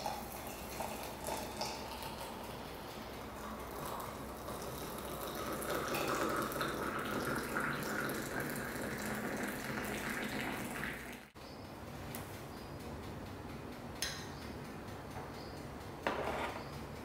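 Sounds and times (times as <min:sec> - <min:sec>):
water running from tap: 0:03.4 - 0:11.3.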